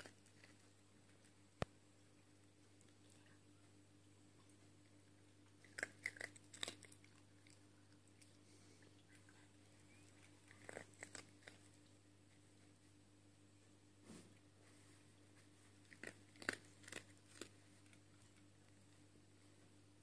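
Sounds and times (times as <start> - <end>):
dog crunching dry treats: 5.6 - 7.6, 10.2 - 11.8, 15.7 - 18.4.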